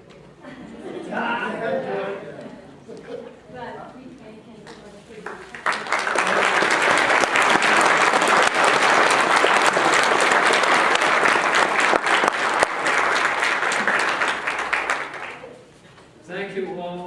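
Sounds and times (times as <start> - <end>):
congregation applauding: 5.2 - 15.7.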